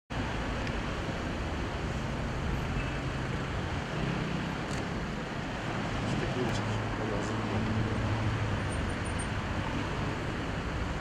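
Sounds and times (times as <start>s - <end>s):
traffic and engine noise: 0.1s - 11.0s.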